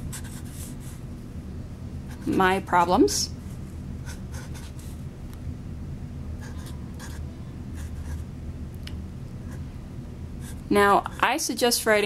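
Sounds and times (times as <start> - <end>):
low steady hum: 0.0 - 12.0
marker scratching on paper cup: 4.1 - 4.8, 6.4 - 7.2, 7.8 - 8.2, 10.4 - 11.4.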